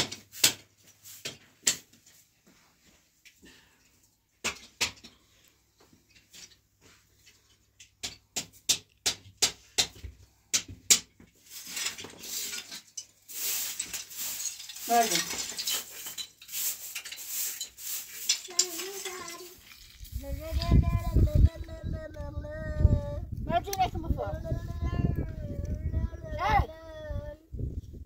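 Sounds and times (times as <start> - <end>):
broom sweeping earth floor: 0.0 - 3.8, 5.8 - 7.6, 11.2 - 21.4.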